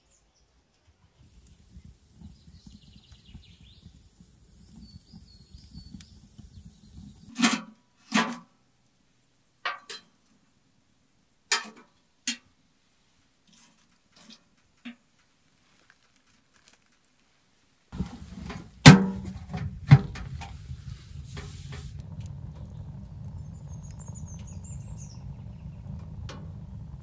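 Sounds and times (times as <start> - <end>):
faint chirps: 1.2 - 7.3, 22.0 - 26.8
fire rumbling and crackling: 1.2 - 7.3, 17.9 - 27.0.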